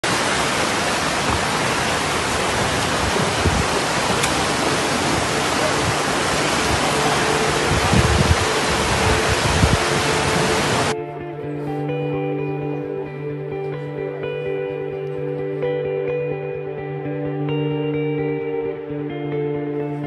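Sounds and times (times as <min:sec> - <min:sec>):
floodwater rushing: 0:00.0 - 0:11.0.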